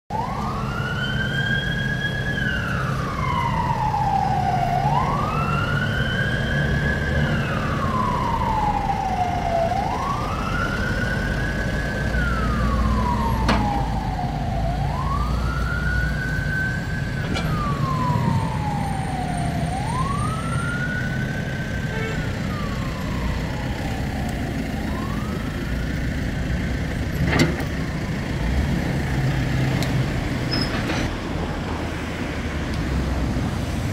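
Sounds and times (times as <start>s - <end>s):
siren wailing: 0.1s - 25.9s.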